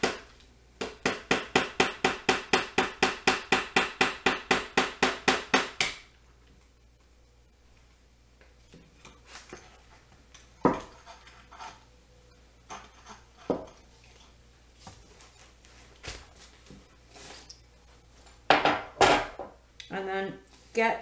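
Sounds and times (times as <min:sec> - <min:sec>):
hammer tapping a nail into wood: 0:00.8 - 0:06.0.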